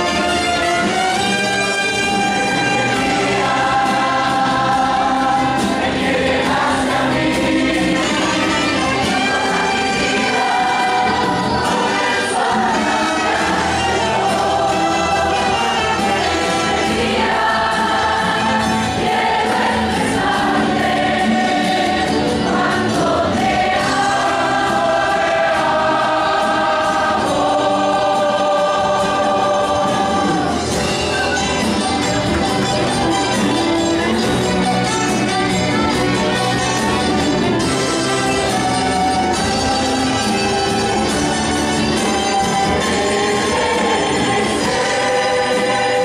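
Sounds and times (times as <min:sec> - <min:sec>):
choir singing worship song: 0:00.0 - 0:31.0, 0:37.6 - 0:46.0
bass guitar: 0:00.0 - 0:46.0
saxophones: 0:00.0 - 0:46.0
trumpets and trombone: 0:00.0 - 0:46.0.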